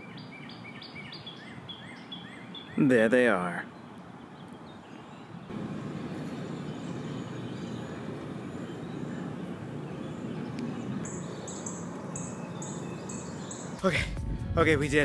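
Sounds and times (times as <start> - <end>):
low rumbling noise: 5.5 - 12.1, 13.8 - 15.0.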